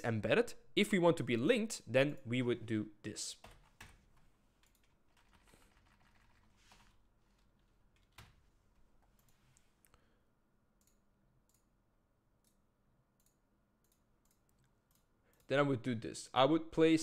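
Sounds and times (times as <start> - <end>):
keyboard and mouse clicks: 4.6 - 6.4.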